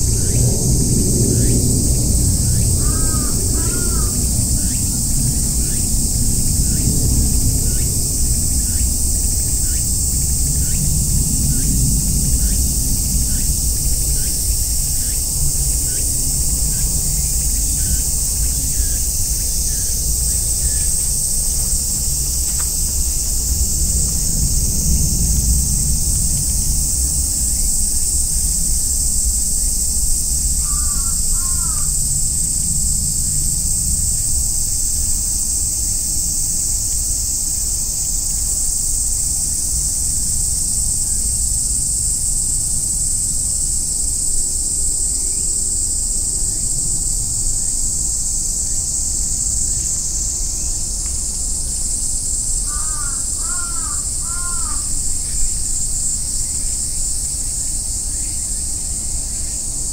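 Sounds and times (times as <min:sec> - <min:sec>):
cicadas droning: 0:00.0 - 0:59.9
crow cawing: 0:02.8 - 0:04.2, 0:30.6 - 0:32.0, 0:52.6 - 0:54.9.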